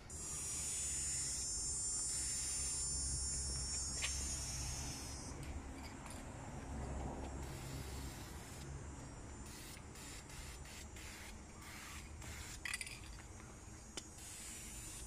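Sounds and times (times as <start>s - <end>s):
aerosol spray can hissing: 0.1s - 5.4s, 7.4s - 8.7s, 9.4s - 12.8s, 14.1s - 15.0s.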